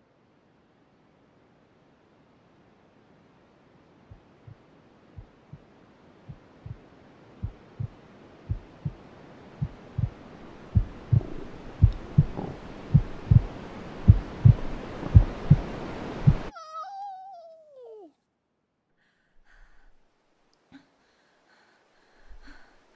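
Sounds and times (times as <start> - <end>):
heartbeat thumps: 4.1 - 4.6, 5.2 - 5.7, 6.3 - 9.0, 9.6 - 16.5.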